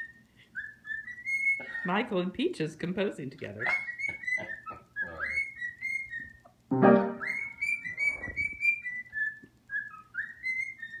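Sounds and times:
cockatiel whistling: 0.0 - 1.8, 3.6 - 6.4, 7.0 - 11.0
piano playing: 6.7 - 7.6.

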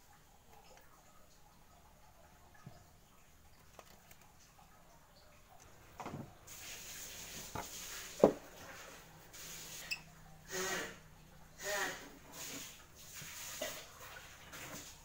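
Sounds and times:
wooden board knocking: 8.2 - 8.4.

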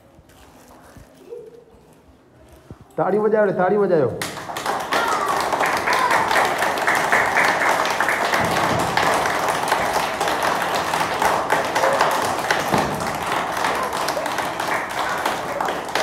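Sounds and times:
children clapping: 4.2 - 16.0.

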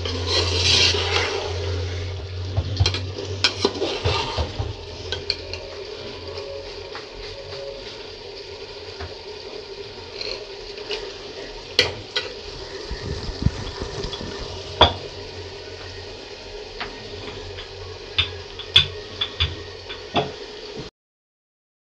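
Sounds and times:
pan sizzling: 0.0 - 20.9.

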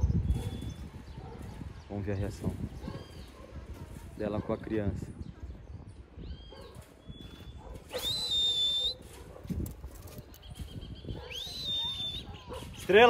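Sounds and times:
high-pitched whistling: 7.9 - 9.0, 11.3 - 12.4.

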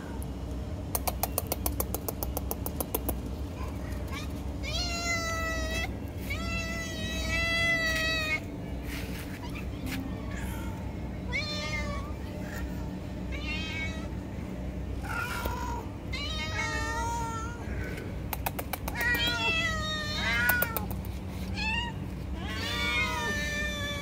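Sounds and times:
cats meowing: 3.6 - 8.5, 9.3 - 14.3, 15.0 - 18.2, 18.8 - 24.0.

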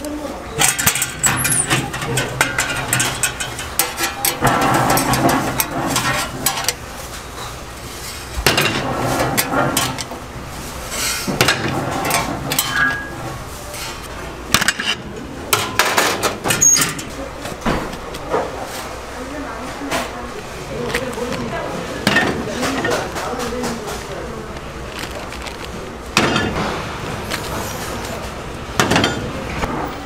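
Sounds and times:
baking tray scraping out: 0.6 - 17.6.

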